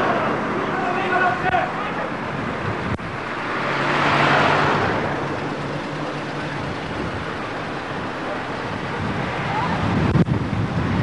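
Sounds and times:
vehicle passing: 1.8s - 10.2s.

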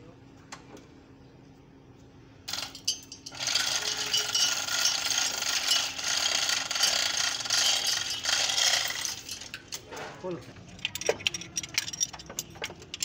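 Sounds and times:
chain hoist ratcheting: 2.5s - 9.9s, 10.6s - 13.0s
chains rattling: 2.5s - 9.9s, 10.6s - 13.0s.

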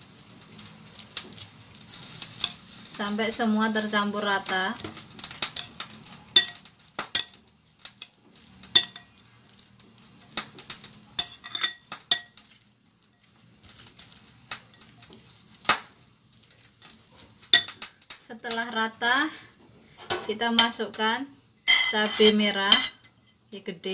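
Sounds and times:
metal spoon clinking on glass bowl: 6.4s - 7.4s, 8.7s - 9.1s, 11.2s - 12.4s.

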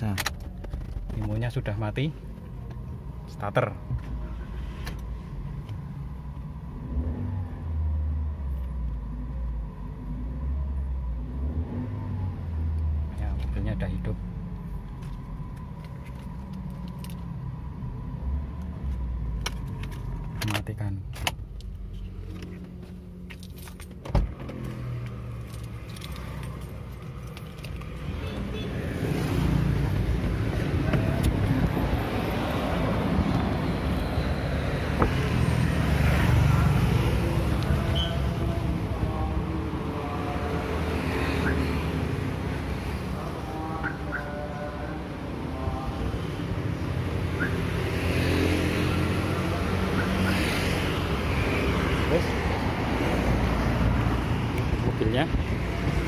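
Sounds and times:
car engine starting and running: 0.0s - 56.0s
car key jangling and clicking: 15.0s - 17.3s, 19.4s - 28.3s.

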